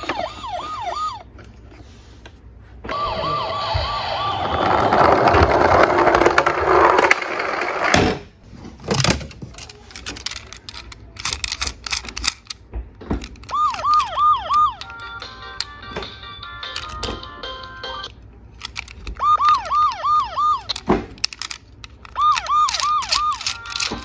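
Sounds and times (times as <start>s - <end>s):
toy police car siren whoops: 0.0s - 1.3s, 2.9s - 5.5s, 13.4s - 15.7s, 19.0s - 20.9s, 22.0s - 24.0s
plastic toy vehicles clattering: 4.2s - 8.2s, 8.8s - 24.0s.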